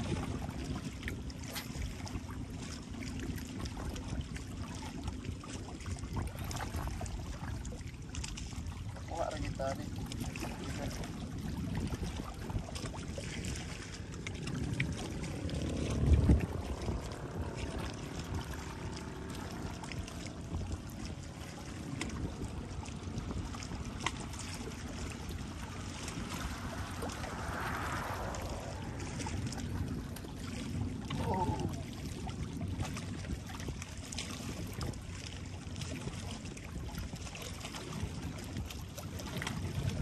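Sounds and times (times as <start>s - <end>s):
water lapping and trickling: 0.0s - 40.0s
low rumble: 9.8s - 33.9s.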